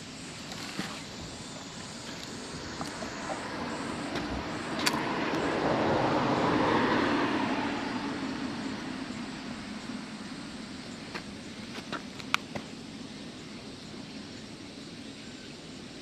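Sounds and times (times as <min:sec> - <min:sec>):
vehicle passing: 0:01.8 - 0:11.6.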